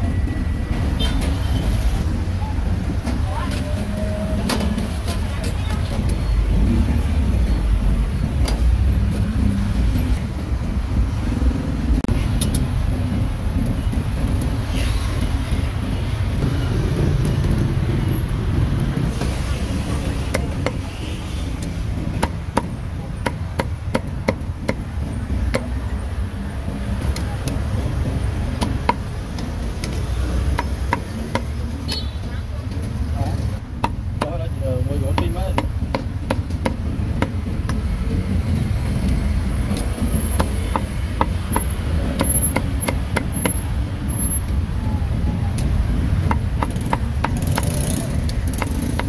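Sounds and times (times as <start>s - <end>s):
street traffic rumble: 0.0s - 49.0s
cleaver chopping meat: 46.3s - 49.0s.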